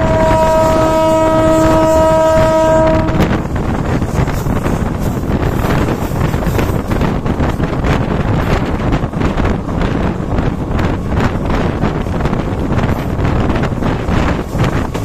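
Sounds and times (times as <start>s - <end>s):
locomotive air horn blast: 0.0s - 3.5s
train running noise: 0.0s - 15.0s
wind buffeting microphone: 0.0s - 15.0s.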